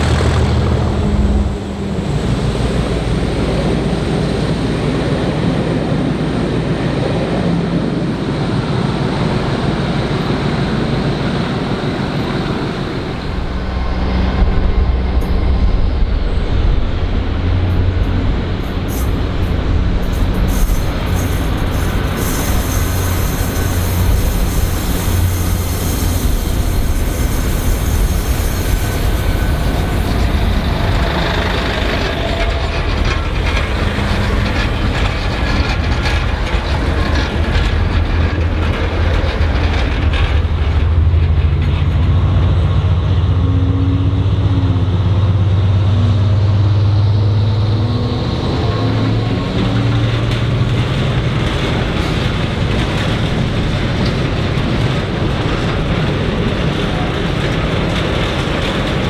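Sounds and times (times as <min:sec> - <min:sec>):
locomotive drone: 0:00.0 - 0:59.0
train rumbling past: 0:00.0 - 0:59.0
wheels on rails: 0:11.2 - 0:42.9, 0:48.4 - 0:59.0.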